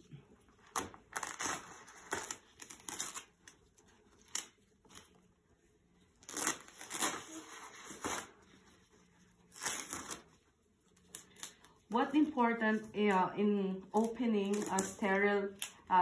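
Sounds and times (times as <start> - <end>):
wrap rustling: 0.5 - 11.7
tape tearing and crinkling: 0.6 - 5.2, 6.2 - 8.5, 9.5 - 10.4, 14.0 - 15.8.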